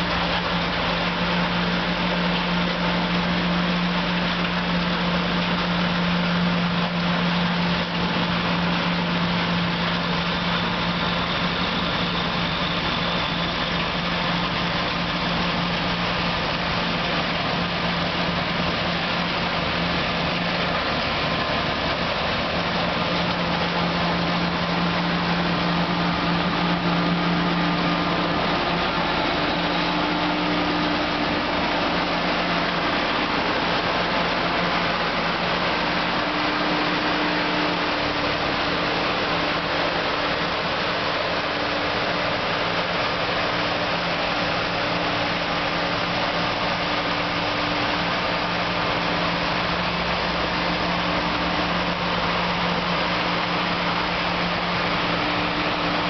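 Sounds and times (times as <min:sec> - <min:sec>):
snowblower engine droning: 0:00.0 - 0:56.0
snow rushing: 0:16.4 - 0:56.0.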